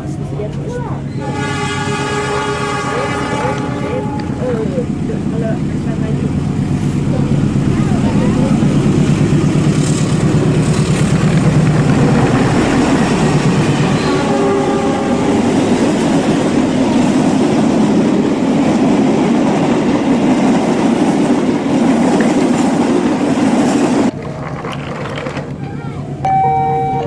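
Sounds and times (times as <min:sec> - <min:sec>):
plastic wheels rattling on tiles: 0:24.2 - 0:25.6
faint tone: 0:26.2 - 0:27.0.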